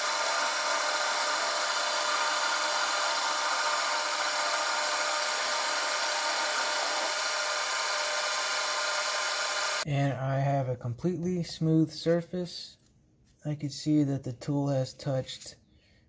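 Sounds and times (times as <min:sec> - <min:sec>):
lathe cutting metal: 0:00.0 - 0:09.8
lathe spindle hum: 0:00.0 - 0:09.8.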